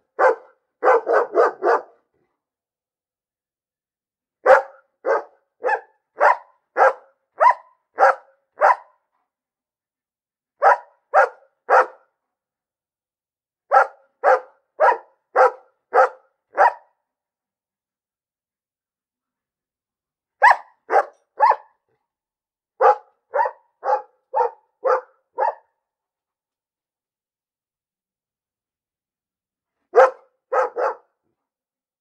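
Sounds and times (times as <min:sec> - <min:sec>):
dog barking: 0:00.1 - 0:02.0, 0:04.4 - 0:09.1, 0:10.6 - 0:12.1, 0:13.7 - 0:17.0, 0:20.4 - 0:21.8, 0:22.8 - 0:25.8, 0:29.9 - 0:31.2.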